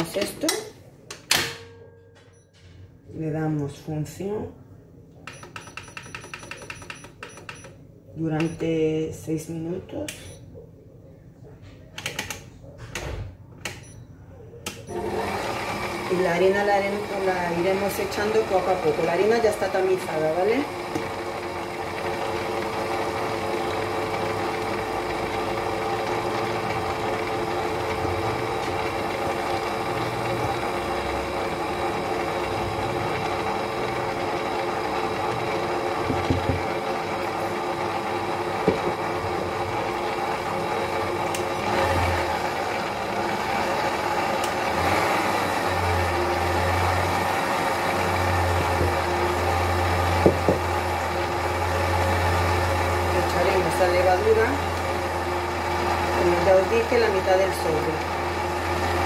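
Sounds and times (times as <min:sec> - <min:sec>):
electric stand mixer running: 0:14.9 - 0:59.0.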